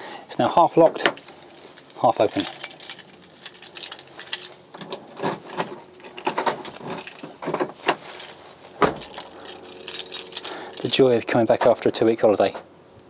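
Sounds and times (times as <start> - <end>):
keys jangling in a door lock: 1.7 - 7.4, 8.2 - 11.1.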